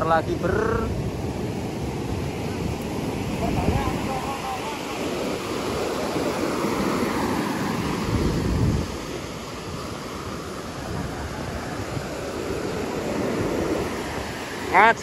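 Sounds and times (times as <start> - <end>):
ocean waves breaking on beach: 0.0 - 15.0
wind on microphone: 0.0 - 15.0.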